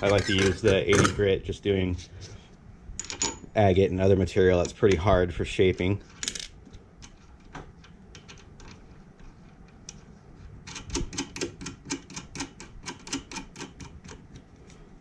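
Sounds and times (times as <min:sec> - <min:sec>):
nut clicking as it turns: 0:10.7 - 0:14.4.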